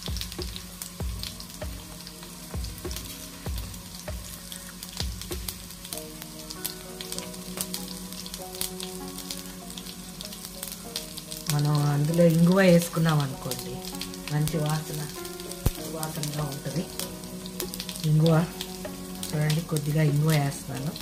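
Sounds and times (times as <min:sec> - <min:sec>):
hot oil sizzling in a pan: 0:00.0 - 0:21.0
seeds crackling and popping: 0:00.0 - 0:21.0.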